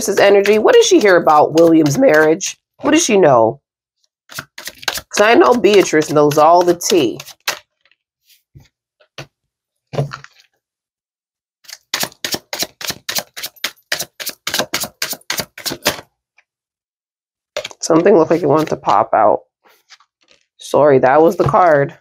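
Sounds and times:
cards being shuffled: 0:04.3 - 0:08.4.

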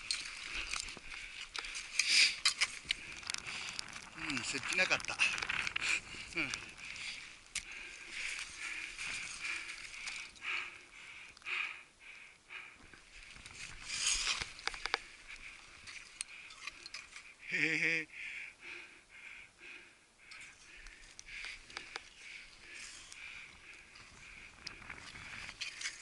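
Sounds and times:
rustling and scraping on snow: 0:00.0 - 0:10.4, 0:12.9 - 0:17.8, 0:20.5 - 0:26.0
sharp clicks: 0:20.3 - 0:22.2.

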